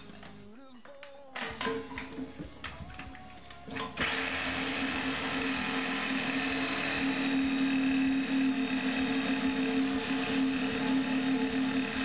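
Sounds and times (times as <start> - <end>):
reciprocating saw cutting metal: 3.8 - 12.0.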